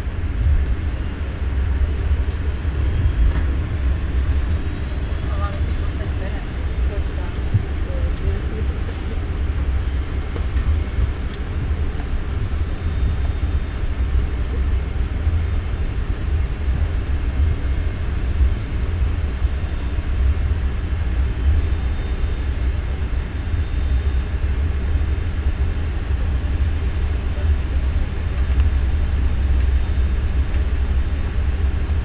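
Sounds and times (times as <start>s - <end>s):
airliner jet engines taxiing rumble: 0.0s - 32.0s
faint steady hum: 0.0s - 32.0s.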